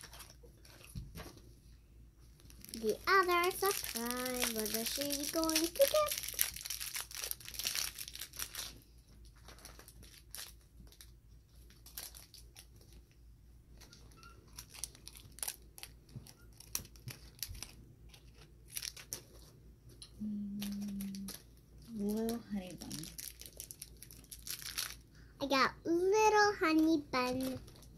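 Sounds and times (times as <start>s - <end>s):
wrapper tearing and crumpling: 0.0s - 0.9s, 2.4s - 13.0s, 14.5s - 19.5s, 20.6s - 25.1s, 27.2s - 27.9s.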